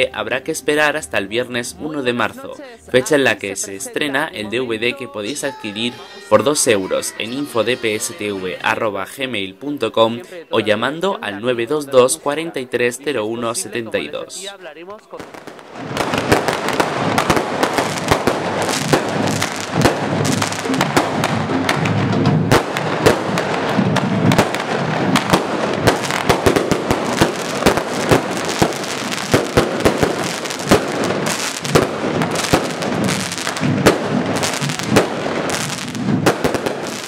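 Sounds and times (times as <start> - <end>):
music: 0.0 - 14.0, 16.5 - 37.0
fireworks bangs and crackles: 15.2 - 37.0.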